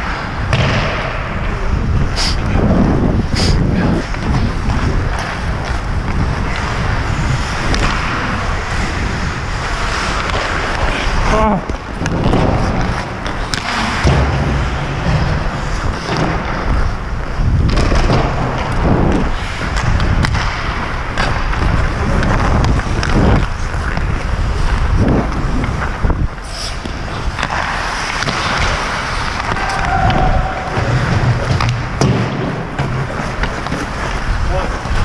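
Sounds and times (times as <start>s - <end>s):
skate blades scraping ice: 0.0s - 35.0s
wind on microphone: 0.0s - 35.0s
hockey stick knocking puck: 4.1s - 8.4s, 9.9s - 16.8s, 17.6s - 26.0s, 26.8s - 35.0s.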